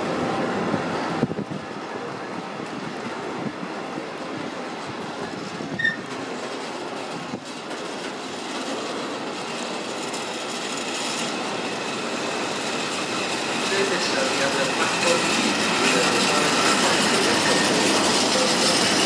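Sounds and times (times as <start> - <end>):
train wheels rumbling on rails: 0.0 - 19.0
high squeal: 5.2 - 6.1.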